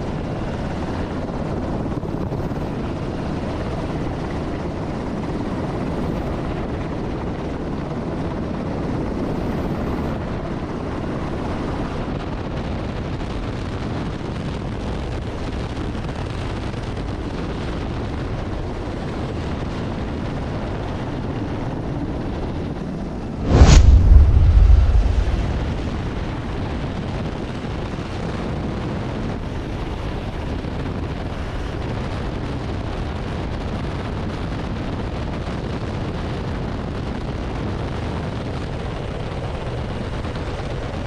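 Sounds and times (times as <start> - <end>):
aircraft engine rushing: 23.0 - 27.2
sudden loud bang: 23.4 - 26.4.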